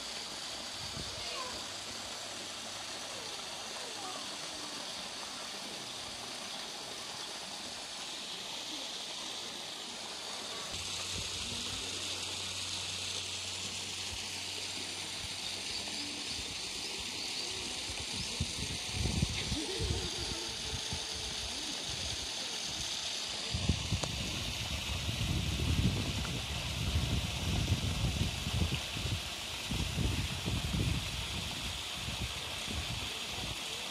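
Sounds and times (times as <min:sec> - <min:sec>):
rush of running water: 0:00.0 - 0:33.9
wind buffeting microphone: 0:18.1 - 0:21.4, 0:23.5 - 0:33.0.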